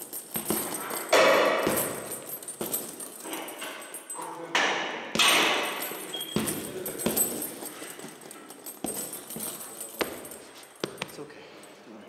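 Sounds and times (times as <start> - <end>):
punches thudding on heavy bag: 0.0 - 3.2, 5.1 - 8.1, 8.7 - 11.0.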